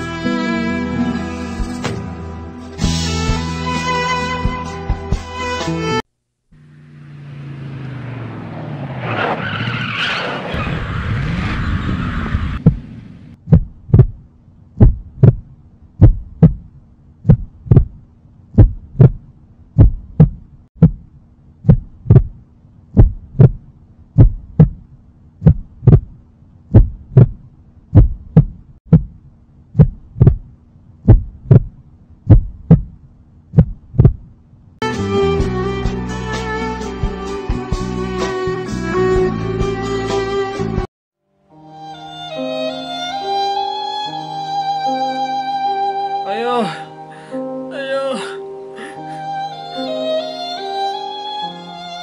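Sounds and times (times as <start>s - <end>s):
motorcycle speeding: 6.6s - 13.3s
tyres skidding: 6.6s - 14.0s
heartbeat sound effect: 12.6s - 14.2s, 14.8s - 18.0s, 18.6s - 22.4s, 23.0s - 34.3s.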